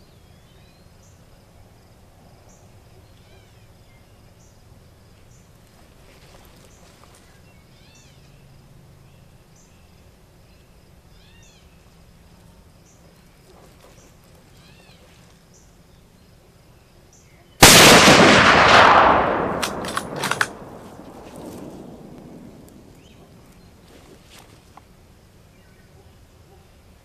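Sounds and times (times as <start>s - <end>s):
insects chirping: 0.0s - 27.0s
loud rifle shot echoing: 17.6s - 23.1s.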